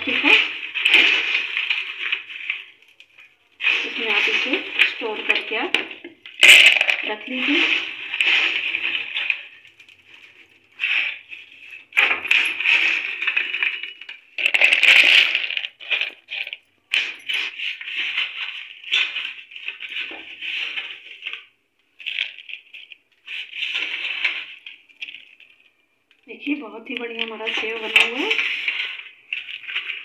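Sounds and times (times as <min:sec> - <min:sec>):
crunchy snack pouring into plastic container: 0:00.0 - 0:25.7.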